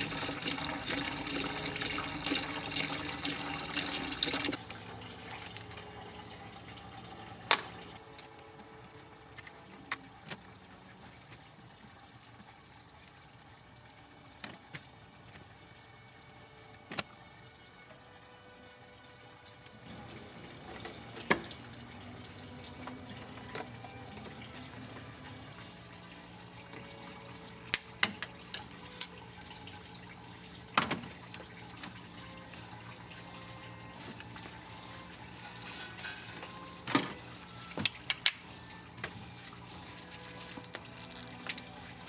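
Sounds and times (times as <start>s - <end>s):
liquid trickling: 0.0s - 42.0s
hoses and clamps clicking: 25.5s - 29.8s, 34.0s - 39.2s, 39.9s - 41.7s.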